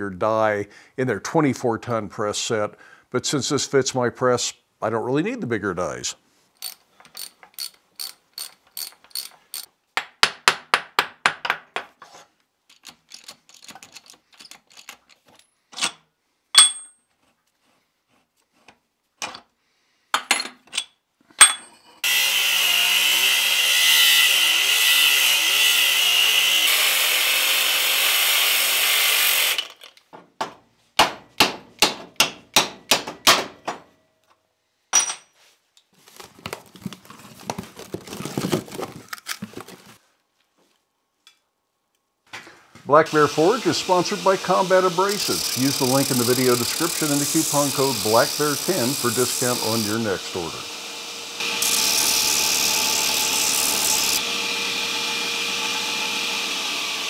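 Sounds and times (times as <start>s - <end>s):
metal clinks: 16.6s - 17.0s
angle grinder grinding steel: 22.0s - 29.8s, 43.1s - 57.0s.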